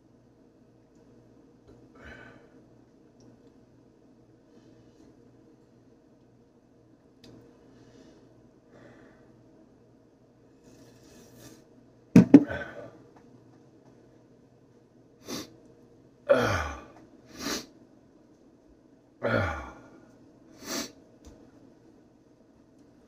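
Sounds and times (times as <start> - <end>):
man breathing hard: 12.4 - 13.0.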